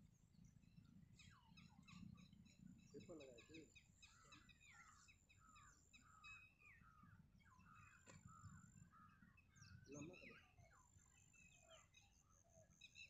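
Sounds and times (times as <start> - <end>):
faint birds chirping: 0.0 - 13.0
single click: 8.0 - 8.2.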